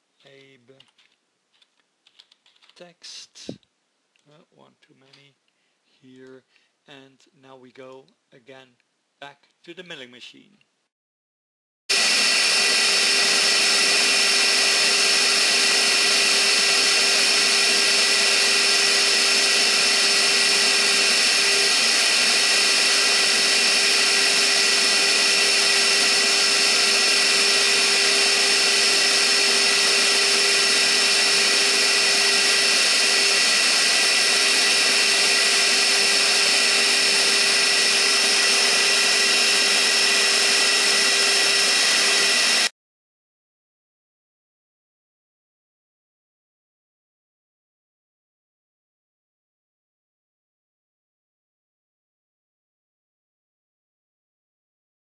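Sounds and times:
cutter hissing through wood: 0:11.9 - 0:42.7
milling machine spindle whine: 0:11.9 - 0:42.7.

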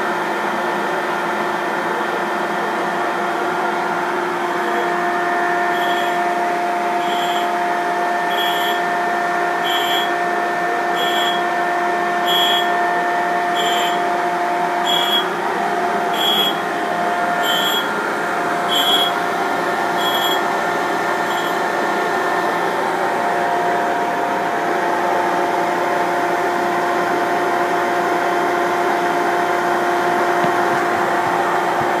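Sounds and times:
grinding wheel hiss: 0:03.5 - 0:07.6, 0:08.2 - 0:08.9, 0:09.5 - 0:10.2, 0:10.9 - 0:11.5, 0:12.1 - 0:12.8, 0:13.5 - 0:22.6
grinder and vacuum humming: 0:04.3 - 0:07.6, 0:13.5 - 0:14.0.

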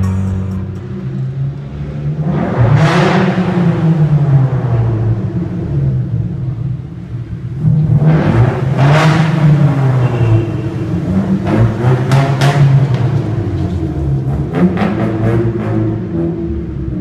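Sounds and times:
vehicle engine running: 0:00.0 - 0:02.6.

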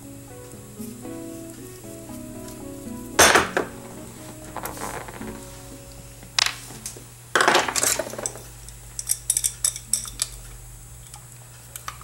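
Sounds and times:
metal parts clinking on workbench: 0:07.4 - 0:08.4.

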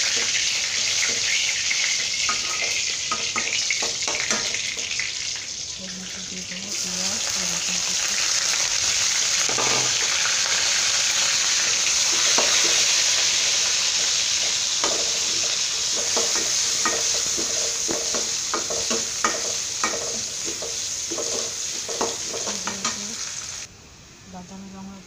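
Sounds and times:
metal spoon scraping a pan: 0:00.0 - 0:05.0, 0:09.4 - 0:11.3, 0:11.9 - 0:23.2
onion sizzling in hot oil: 0:00.0 - 0:23.7.

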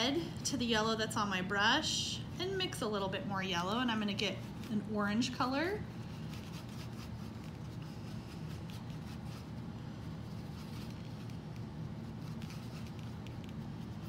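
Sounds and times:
low room hum: 0:00.0 - 0:14.0
paintbrush scratching on palette: 0:03.8 - 0:14.0.

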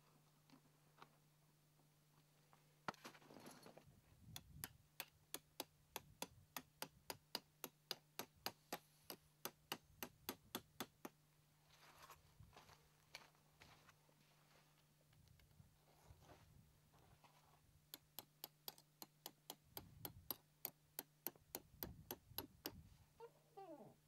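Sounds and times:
hammer tapping tent peg: 0:04.3 - 0:11.2, 0:17.9 - 0:22.8.

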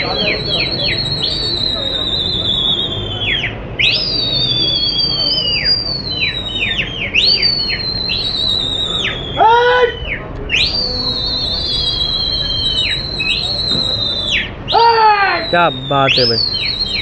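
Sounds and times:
short chirped whistles: 0:00.0 - 0:17.0
shrill human whistles: 0:00.0 - 0:17.0
person shouting: 0:14.7 - 0:15.5.

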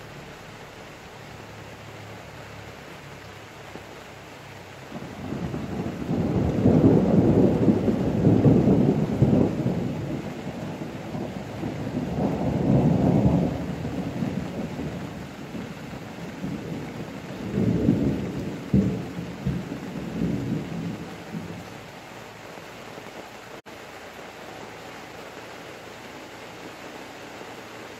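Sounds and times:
rain hissing: 0:00.0 - 0:27.9
thunder rumbling: 0:04.8 - 0:22.4
thunder claps: 0:04.9 - 0:21.9.

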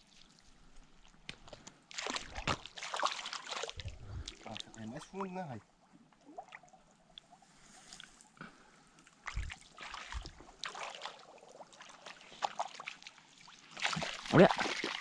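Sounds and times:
puddle water splashing: 0:01.3 - 0:04.8, 0:09.2 - 0:15.0.

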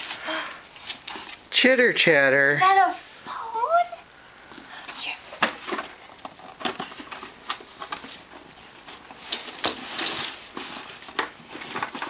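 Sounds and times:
cardboard tapping and rustling: 0:05.3 - 0:12.0.

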